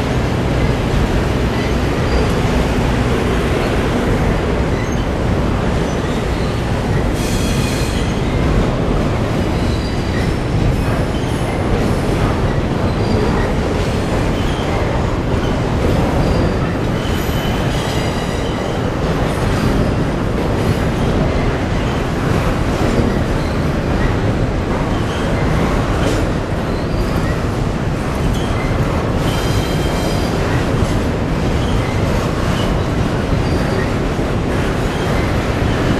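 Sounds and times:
train wheels rumbling on rails: 0.0 - 35.9.

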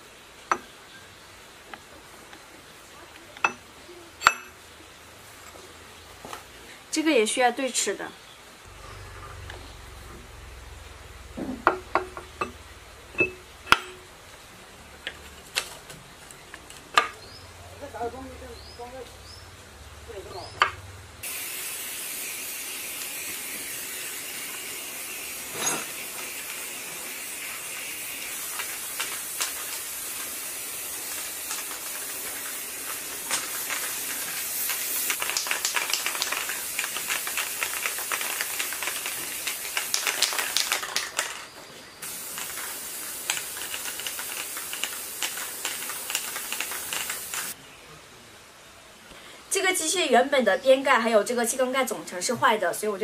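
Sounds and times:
spray paint can hissing: 21.2 - 41.4, 42.0 - 47.6
sharp crackling ticks: 34.6 - 41.3, 42.4 - 47.6.

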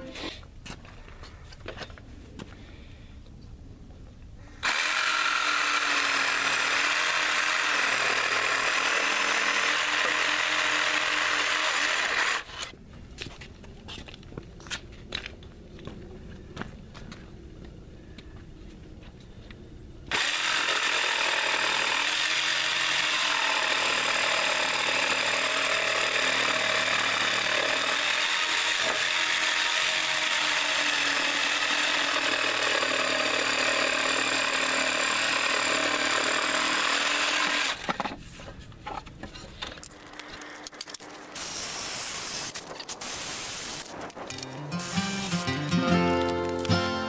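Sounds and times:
jigsaw cutting wood: 4.6 - 12.7, 20.1 - 37.9, 41.4 - 46.7.

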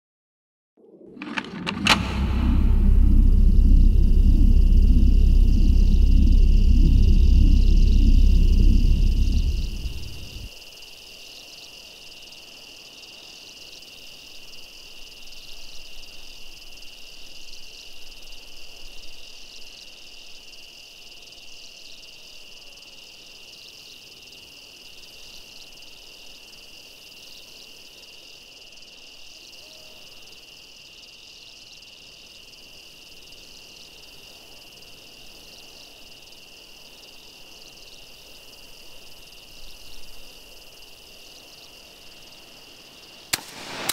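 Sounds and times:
insect pulsing buzz: 2.2 - 10.5.

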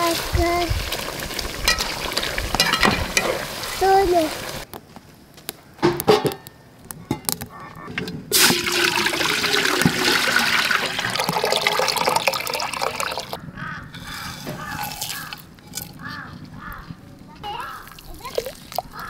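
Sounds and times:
water pouring into metal pot: 0.0 - 4.6, 8.3 - 13.4, 14.0 - 16.0, 17.8 - 19.0.

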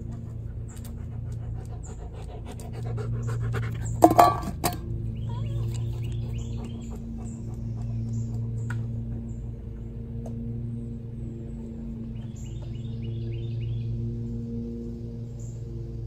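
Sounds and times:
steady low hum: 0.0 - 16.0
small birds chirping: 5.1 - 10.4, 11.8 - 14.6.

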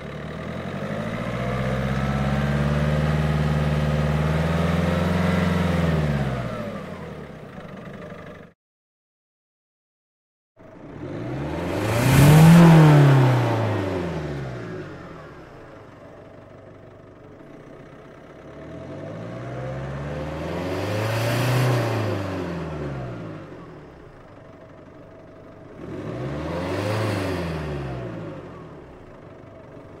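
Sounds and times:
car engine revving: 0.0 - 7.4, 10.7 - 16.1, 18.5 - 24.0, 25.6 - 29.2.

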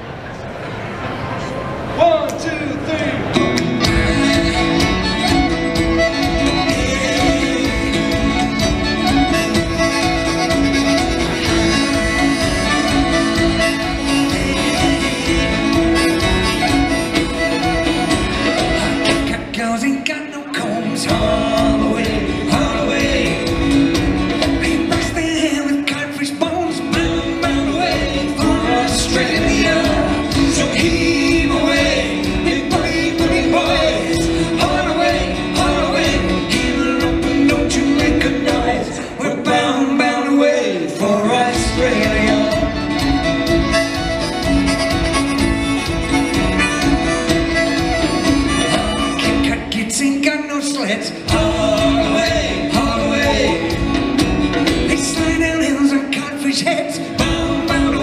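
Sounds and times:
acoustic guitar: 3.1 - 58.0
upright bass: 3.2 - 19.5, 21.0 - 25.4, 26.7 - 39.9, 41.3 - 50.0, 51.0 - 55.8, 57.0 - 58.0
drum kit: 3.3 - 19.6, 20.8 - 39.8, 41.4 - 50.2, 51.1 - 58.0
fiddle: 3.6 - 19.4, 41.9 - 49.6
person singing: 3.8 - 58.0.

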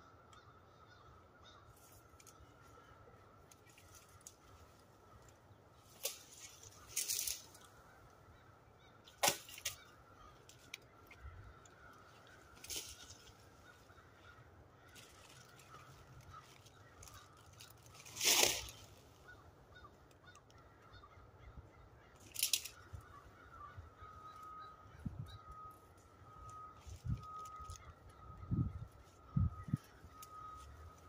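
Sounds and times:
sharp cracks: 9.1 - 9.9
faint steady tone: 22.6 - 31.0.

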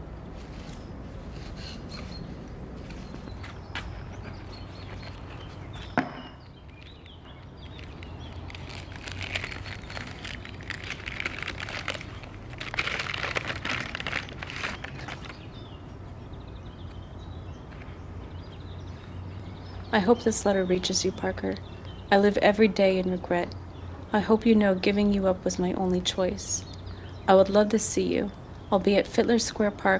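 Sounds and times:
paper crinkling and rustling: 7.6 - 15.4.

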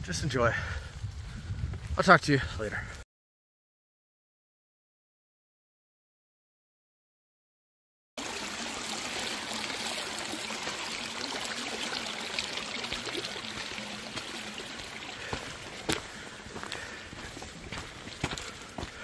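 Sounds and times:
stream of water trickling: 8.2 - 19.0.

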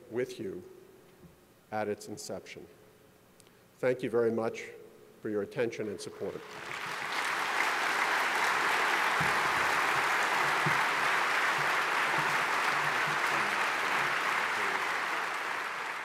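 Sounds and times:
large audience applauding: 6.4 - 16.0.

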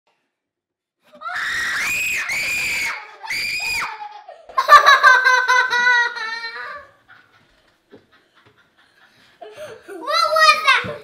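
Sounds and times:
girls screaming: 1.1 - 4.2
girls laughing: 1.2 - 10.2.

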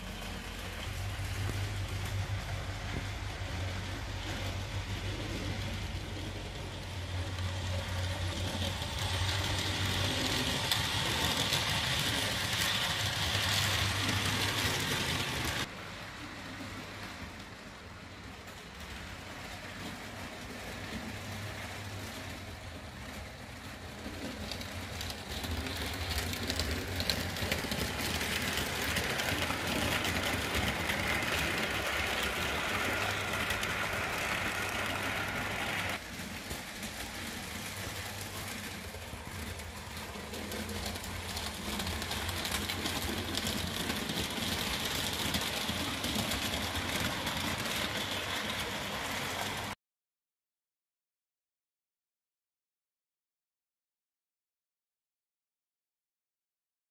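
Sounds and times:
model trains whirring on rails: 0.0 - 49.8.

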